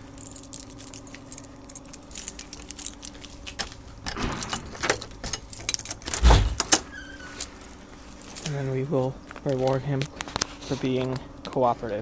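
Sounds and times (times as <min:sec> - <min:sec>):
key rattling in door lock: 0:00.1 - 0:08.7
keys jangling: 0:00.1 - 0:08.8.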